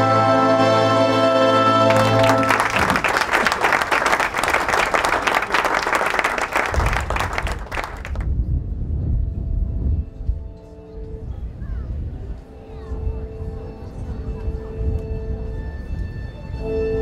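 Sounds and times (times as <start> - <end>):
music: 0.0 - 2.7, 8.9 - 17.0
crowd applauding: 1.8 - 8.3.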